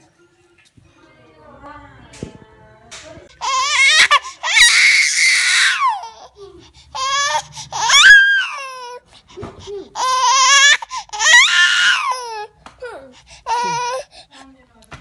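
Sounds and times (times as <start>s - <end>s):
infant crying: 3.4s - 14.3s.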